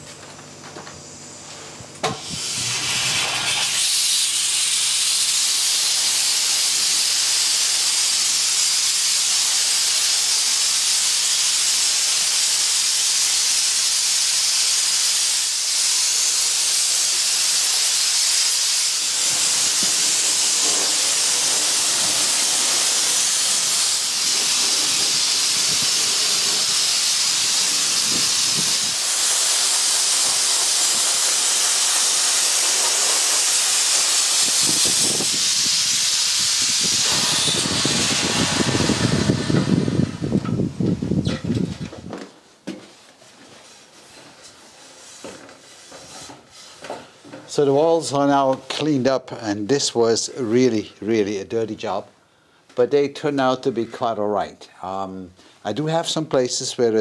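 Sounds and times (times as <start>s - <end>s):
abrasive blasting hiss: 2.0s - 41.3s.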